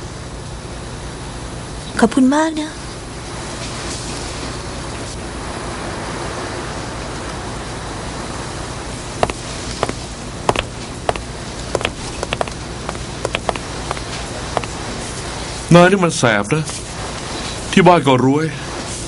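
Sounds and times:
steady hiss: 7.7 - 19.0
short sharp taps: 9.2 - 11.2, 11.8 - 14.8.

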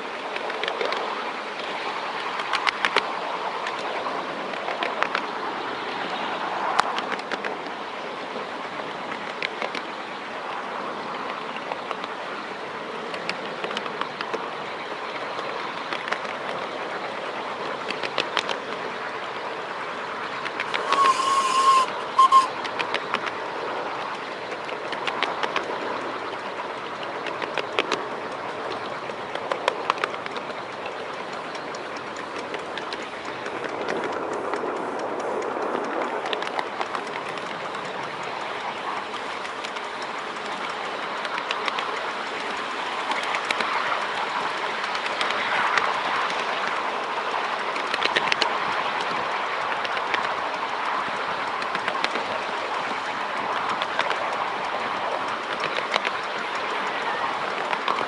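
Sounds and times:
train wheels clicking over rail joints: 0.0 - 58.0
steam train whistle: 20.6 - 22.6.

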